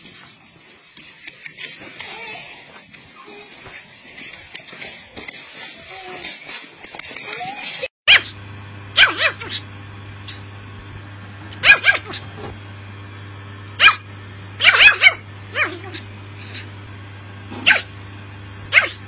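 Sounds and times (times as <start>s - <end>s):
puppy yapping: 7.4s - 8.4s, 9.0s - 10.4s, 11.5s - 12.4s, 13.8s - 16.7s, 17.6s - 17.9s, 18.7s - 19.0s
low steady hum: 8.2s - 19.0s.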